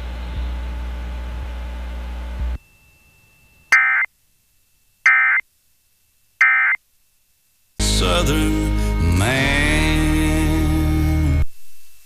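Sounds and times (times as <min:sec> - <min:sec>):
warbling digital data tones: 0:02.6 - 0:04.1, 0:05.0 - 0:05.4
music: 0:07.8 - 0:11.4.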